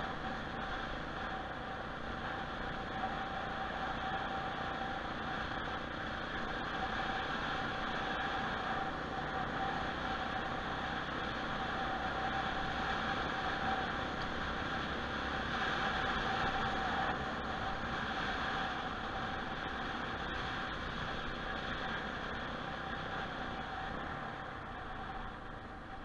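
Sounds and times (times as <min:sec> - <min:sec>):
faint steady tone: 0:00.0 - 0:26.0
motorcycle engine running: 0:00.0 - 0:26.0
road noise: 0:00.0 - 0:26.0.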